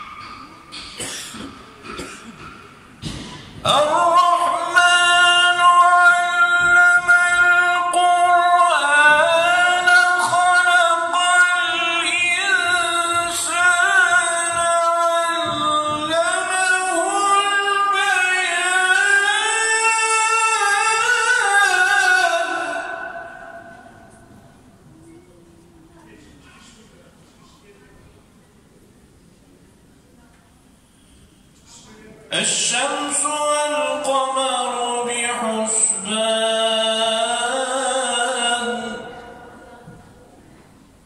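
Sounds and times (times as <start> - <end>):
man chanting into a microphone: 3.6 - 24.3, 32.3 - 40.0.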